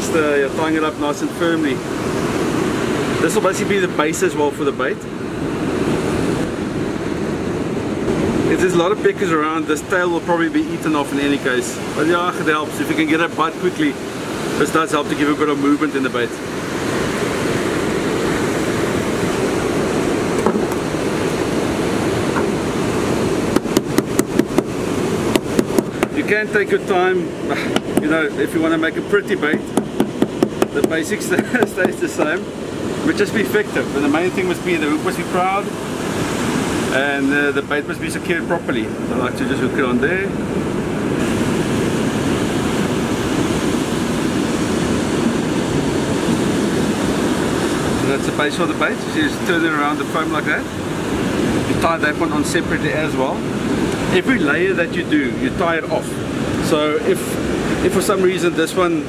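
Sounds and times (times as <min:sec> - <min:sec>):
surf rushing: 0:00.0 - 0:59.0
wind noise on microphone: 0:16.4 - 0:37.0, 0:37.6 - 0:59.0
mallet pounding on cutting board: 0:23.6 - 0:24.7, 0:29.6 - 0:32.0.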